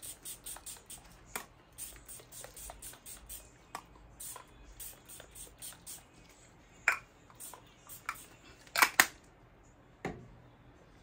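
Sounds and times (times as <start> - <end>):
spray bottle spritzes: 0.0 - 1.1, 1.8 - 3.4.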